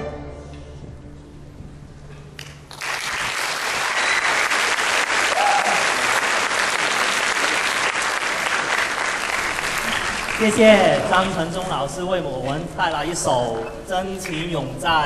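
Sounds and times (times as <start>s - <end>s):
audience applauding: 2.4s - 11.3s.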